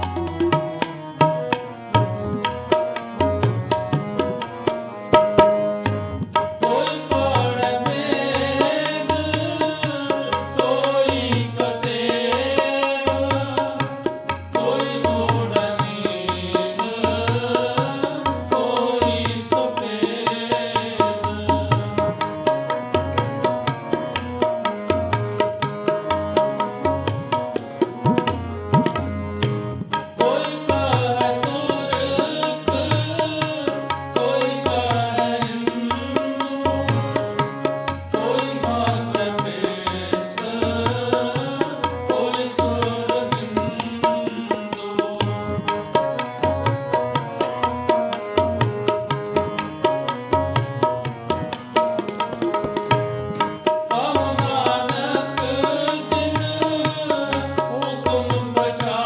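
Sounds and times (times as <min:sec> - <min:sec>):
harmoniums holding chords: 0:00.0 - 0:59.0
tabla drumming: 0:00.0 - 0:59.0
person singing: 0:14.6 - 0:21.9, 0:30.2 - 0:37.4, 0:38.1 - 0:45.9, 0:53.9 - 0:59.0.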